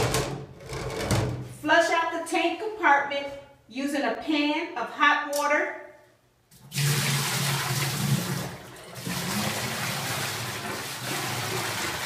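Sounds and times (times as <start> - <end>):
hot water splashing and gushing: 6.6 - 12.0.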